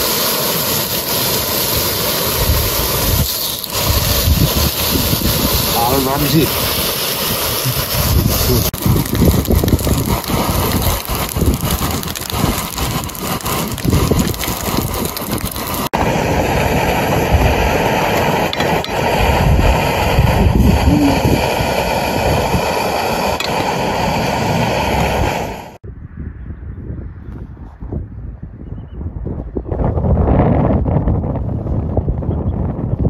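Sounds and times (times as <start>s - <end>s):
bacon sizzling in a frying pan: 0.0s - 16.0s.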